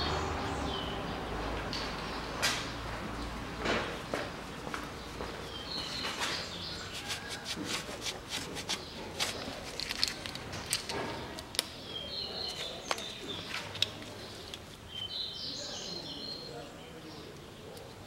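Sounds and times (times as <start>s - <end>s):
cloth rustling: 6.8s - 10.4s
faint bird chirping: 10.6s - 18.0s.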